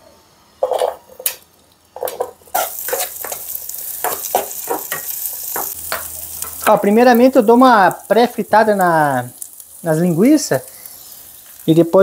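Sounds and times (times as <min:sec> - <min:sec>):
sausage sizzling in a pan: 0:01.2 - 0:12.0
food knocking into a pan: 0:02.0 - 0:06.8
utensil scraping a pan: 0:02.5 - 0:03.4.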